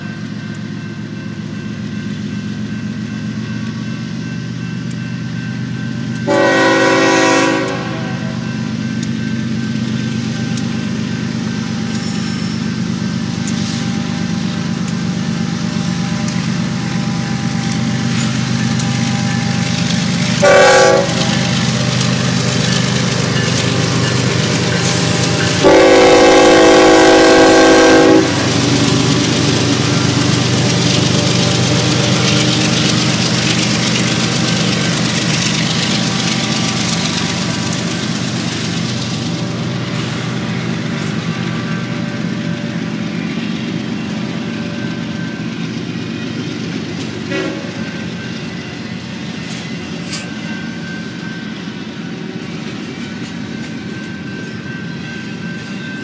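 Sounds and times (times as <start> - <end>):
diesel locomotive engine hum: 0.0 - 56.0
train air horn blasts: 6.2 - 8.4, 20.4 - 21.4, 25.6 - 28.6, 47.3 - 47.8.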